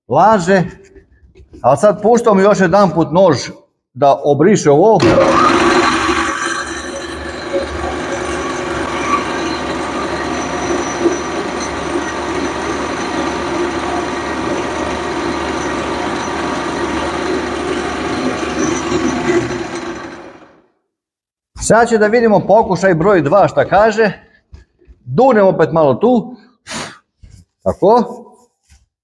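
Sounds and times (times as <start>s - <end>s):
boring machine running: 5.0s - 20.6s.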